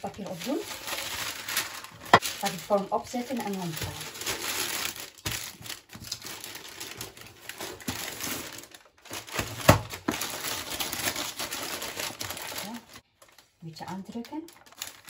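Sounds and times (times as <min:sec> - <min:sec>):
baking paper crinkling: 0:00.0 - 0:15.0.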